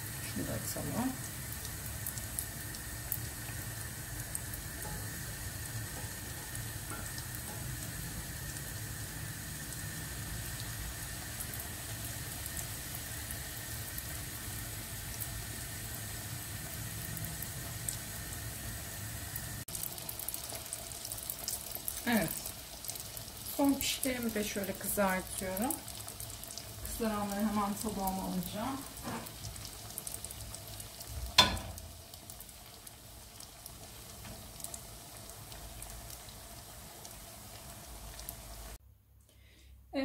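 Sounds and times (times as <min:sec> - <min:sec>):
dough deep-frying in hot oil: 0:00.0 - 0:38.8
oil crackling and popping: 0:19.6 - 0:38.7.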